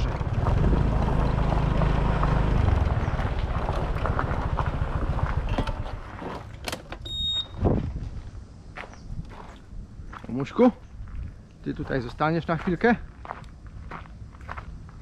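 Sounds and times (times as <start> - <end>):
motor scooter engine running: 0.0 - 6.5
tyres rolling on gravel: 0.0 - 6.6, 11.7 - 15.0
short high beep: 7.1 - 7.6.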